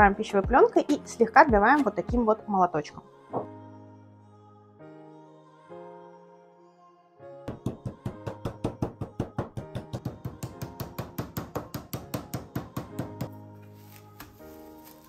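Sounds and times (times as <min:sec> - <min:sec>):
background music: 0:00.0 - 0:15.0
mallet pounding on board: 0:07.5 - 0:13.3.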